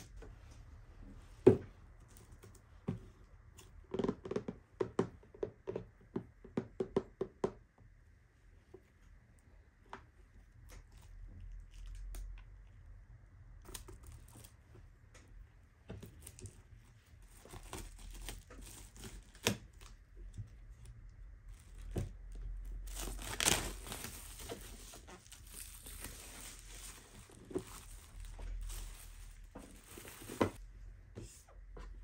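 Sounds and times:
plastic shrink wrap tearing: 17.3 - 20.0, 21.5 - 30.6.

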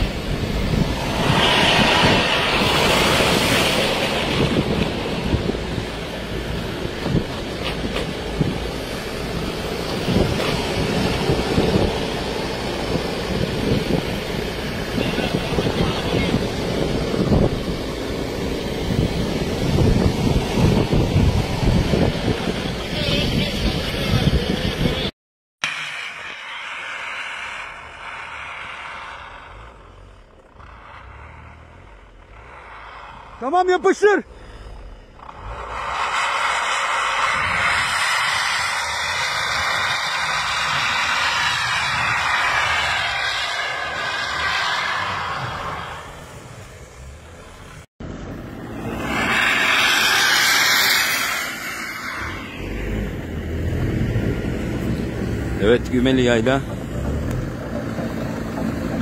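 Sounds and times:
hissing spray of snow: 0.0 - 16.8, 25.6 - 47.8, 48.8 - 53.7
truck engine running low: 0.0 - 25.1, 25.7 - 59.0
tyres spinning in snow: 25.0 - 47.8.

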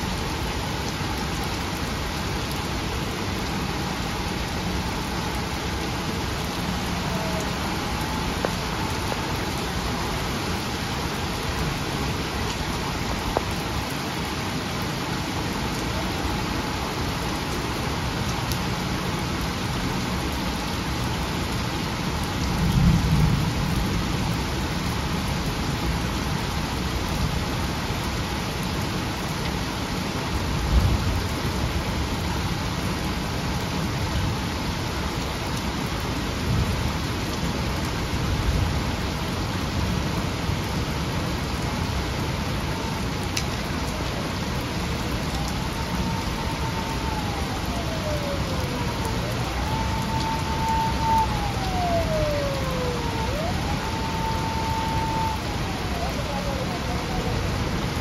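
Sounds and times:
torrential rain on a road: 0.0 - 58.0
siren wailing: 3.8 - 11.7, 42.3 - 58.0.

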